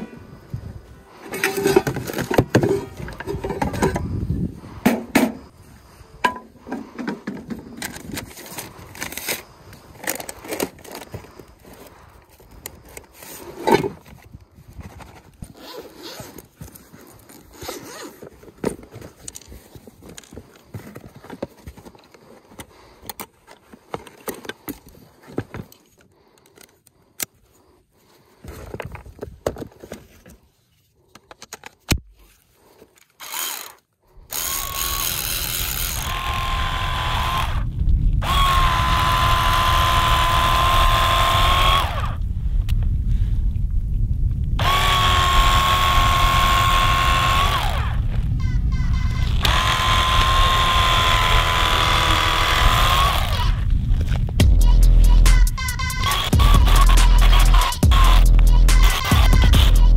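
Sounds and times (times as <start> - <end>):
tools being handled: 1.2 - 4.1, 6.2 - 27.6
zipper opening: 14.9 - 19.2.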